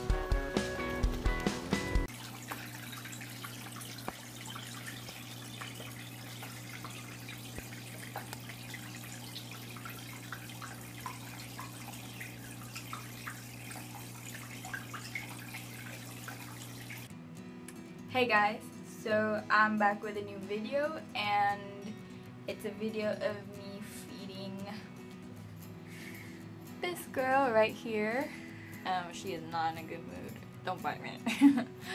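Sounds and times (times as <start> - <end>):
faint drips: 2.1 - 17.1.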